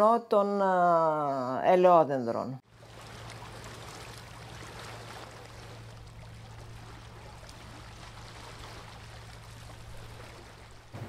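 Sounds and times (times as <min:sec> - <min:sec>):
low hum: 0:02.7 - 0:11.0
water washing: 0:02.7 - 0:11.0.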